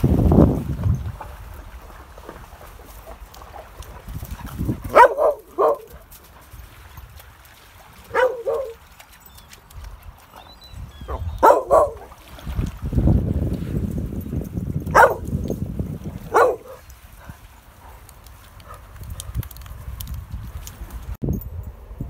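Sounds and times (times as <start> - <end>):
wind buffeting microphone: 0.0 - 2.5, 3.8 - 7.3, 9.7 - 22.0
dog barking: 4.9 - 6.0, 8.1 - 8.8, 11.1 - 12.1, 14.9 - 15.3, 16.3 - 16.8.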